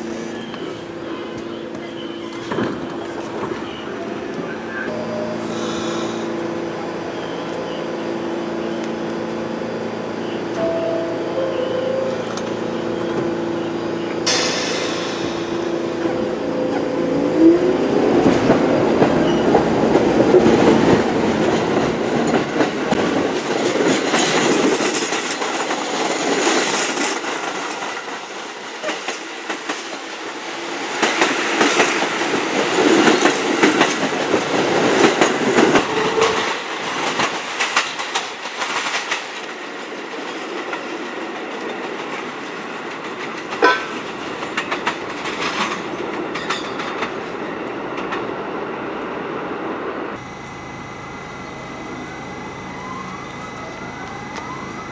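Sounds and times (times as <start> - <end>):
subway train rumbling: 0.0 - 54.9
wheels clacking over rail joints: 17.9 - 48.3.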